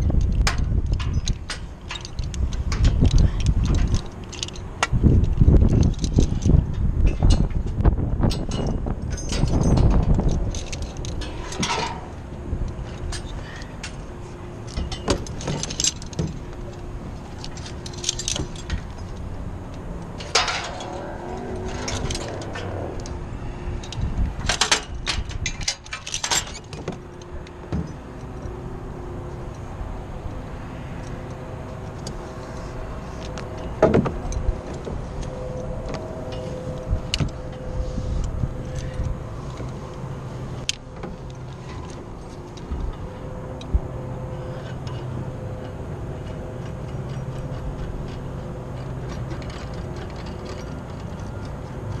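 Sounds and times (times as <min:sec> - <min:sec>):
metal hardware clinking on pipes: 0:00.2 - 0:19.3, 0:20.0 - 0:23.1, 0:23.8 - 0:28.0, 0:44.4 - 0:52.0.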